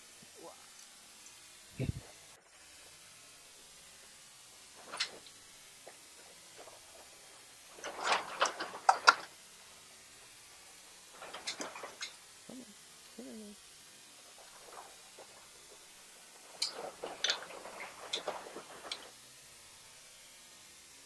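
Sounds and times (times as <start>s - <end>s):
hand tools clicking and rattling: 4.8s - 9.3s, 11.2s - 12.2s, 16.5s - 19.1s.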